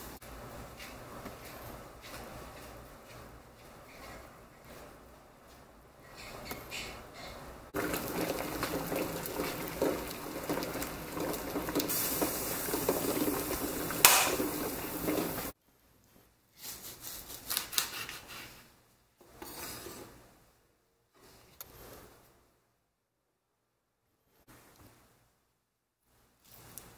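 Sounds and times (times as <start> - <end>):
water boiling in a pan: 7.7 - 15.6.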